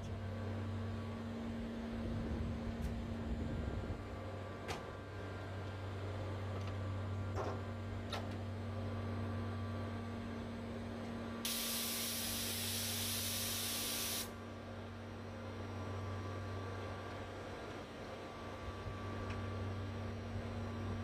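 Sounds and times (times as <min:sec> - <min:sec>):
chiller humming: 0:03.2 - 0:21.0
loud hiss: 0:11.5 - 0:14.3.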